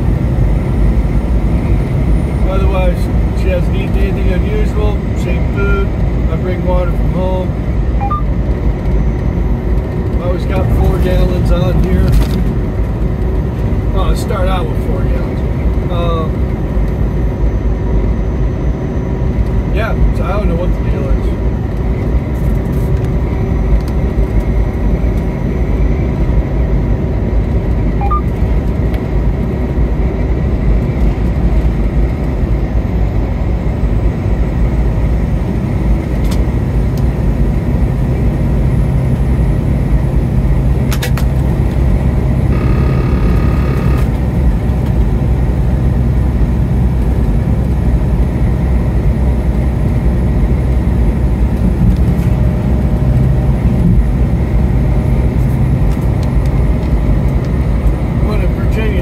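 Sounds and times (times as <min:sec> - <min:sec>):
car road and engine rumble: 0:00.0 - 0:59.0
short high-pitched tone: 0:42.5 - 0:44.1.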